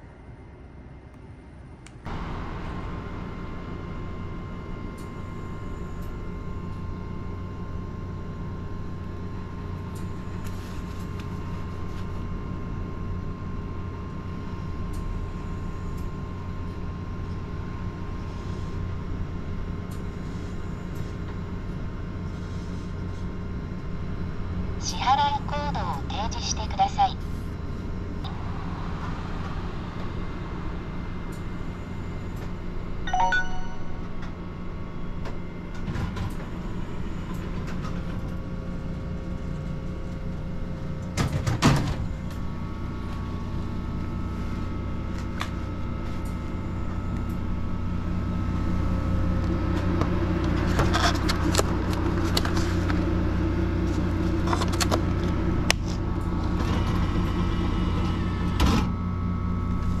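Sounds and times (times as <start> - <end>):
vending machine hum: 0.0 - 60.0
short electronic beep: 33.1 - 34.1.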